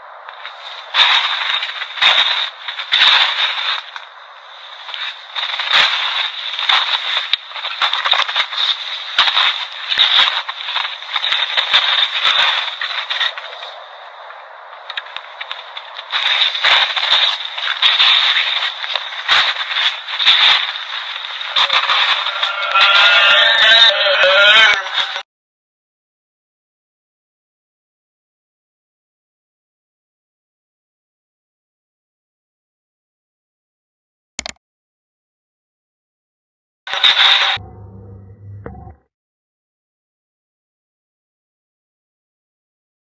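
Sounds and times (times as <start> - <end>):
harsh radio-like crackling: 0.0 - 25.2, 36.9 - 37.6.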